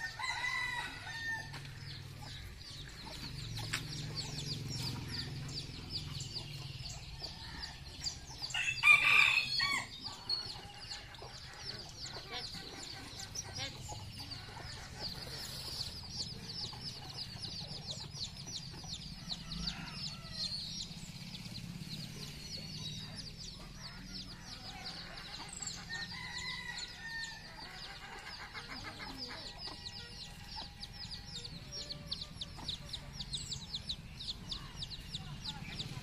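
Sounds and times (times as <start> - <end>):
hens clucking: 9.8 - 19.9, 22.9 - 36.0.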